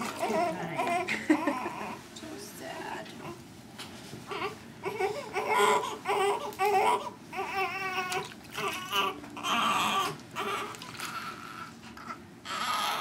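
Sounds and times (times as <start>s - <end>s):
baby crying: 4.3s - 11.7s, 12.5s - 13.0s.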